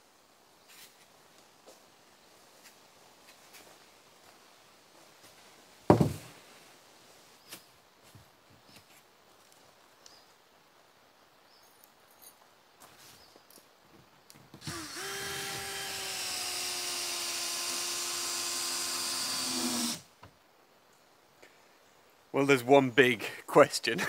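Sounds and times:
power drill spinning: 14.6s - 20.1s.

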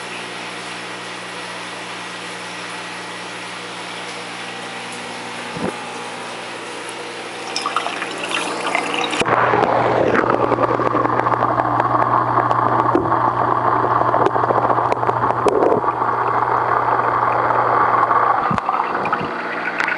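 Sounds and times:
pump humming: 0.0s - 19.9s
water rushing and trickling: 7.3s - 9.3s.

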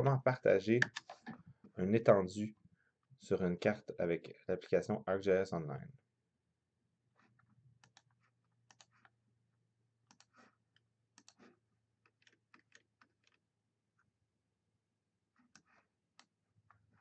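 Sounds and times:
computer mouse clicks: 0.8s - 1.4s, 7.8s - 9.2s, 10.1s - 13.4s.

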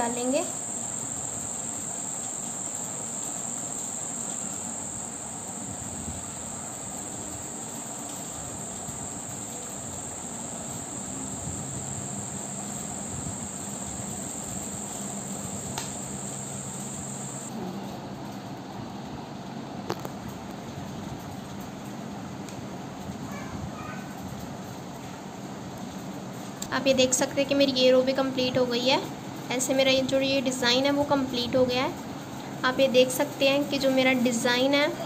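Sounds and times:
high-pitched insect trill: 0.0s - 17.5s
click: 15.7s - 16.0s.

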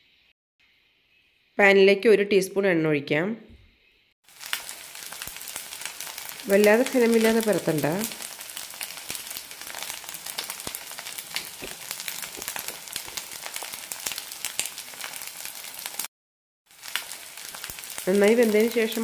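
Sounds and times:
omelette sizzling in a pan: 4.2s - 16.1s, 16.7s - 19.0s
oil popping: 8.1s - 15.2s.

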